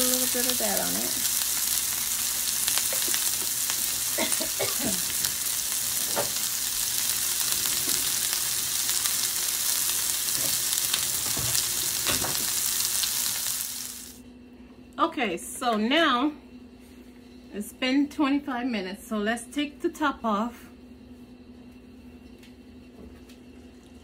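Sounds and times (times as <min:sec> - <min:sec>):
sausage sizzling in oil: 0:00.0 - 0:14.2.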